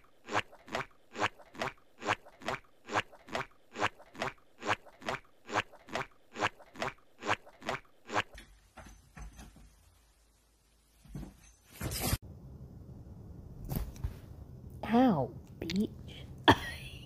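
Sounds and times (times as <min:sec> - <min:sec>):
cartoon footsteps: 0:00.0 - 0:09.5.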